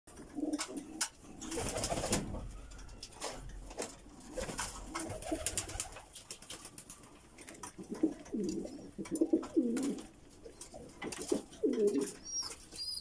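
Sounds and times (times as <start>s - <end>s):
pigeons cooing: 0.2s - 3.1s, 7.4s - 13.0s.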